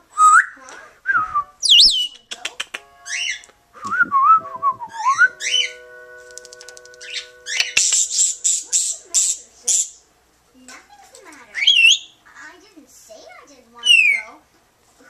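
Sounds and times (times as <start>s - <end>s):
parrot whistling: 0.2s - 5.9s, 6.8s - 10.0s, 11.6s - 12.2s, 13.8s - 14.3s
parrot chirping: 1.6s - 3.6s, 4.2s - 10.1s, 11.4s - 12.3s, 13.8s - 14.4s
parrot clicking: 2.0s - 3.6s, 6.3s - 9.8s.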